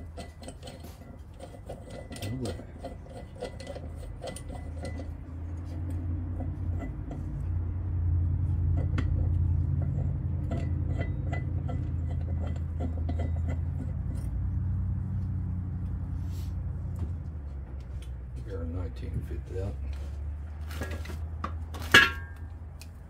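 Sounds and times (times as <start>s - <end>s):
metal tools clinking: 0.0s - 7.5s, 21.8s - 22.5s.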